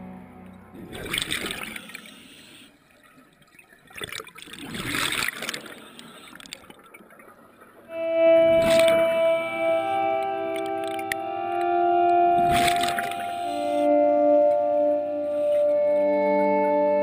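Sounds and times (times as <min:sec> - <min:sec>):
background music: 0:00.0 - 0:01.8, 0:07.9 - 0:17.0
underwater breath bubbling: 0:00.8 - 0:03.0, 0:12.3 - 0:13.9.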